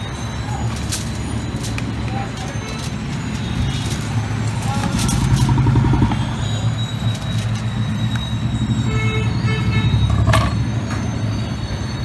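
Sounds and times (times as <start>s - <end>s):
road traffic rumble: 0.0s - 12.0s
car horn toot: 8.7s - 10.5s.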